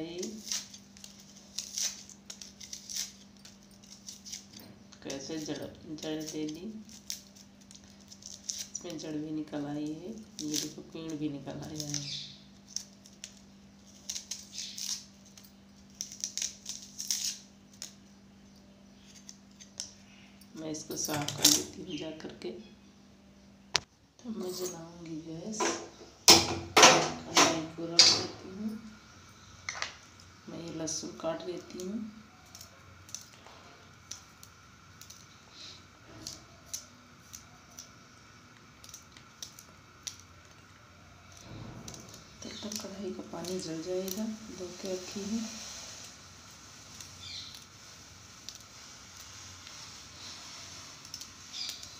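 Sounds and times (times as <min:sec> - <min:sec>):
steady low hum: 0:00.0 - 0:51.9
knife scraping bulb skin: 0:00.1 - 0:09.1, 0:10.1 - 0:18.0, 0:18.9 - 0:20.2, 0:30.6 - 0:38.0, 0:38.7 - 0:51.9.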